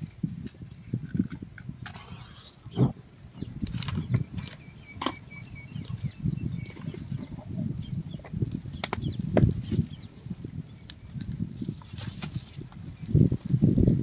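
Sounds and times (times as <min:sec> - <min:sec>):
fire crackling: 0:00.0 - 0:14.0
sticks snapping in fire: 0:08.2 - 0:09.9.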